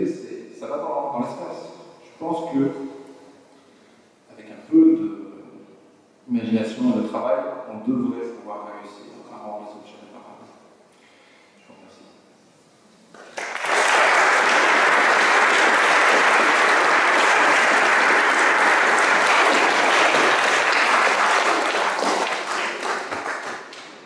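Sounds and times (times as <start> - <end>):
audience applauding: 13.1 - 24.0.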